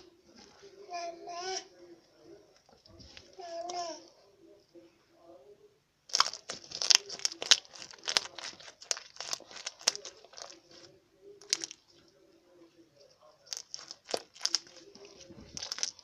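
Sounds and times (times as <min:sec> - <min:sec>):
slime crackling pops: 0:06.1 - 0:10.6, 0:13.5 - 0:14.8.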